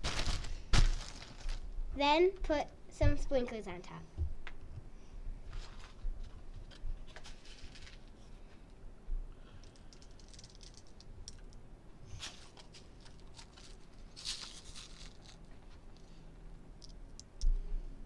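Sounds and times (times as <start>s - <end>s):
sprinkles rattling in plastic container: 9.7s - 11.4s, 12.2s - 15.5s.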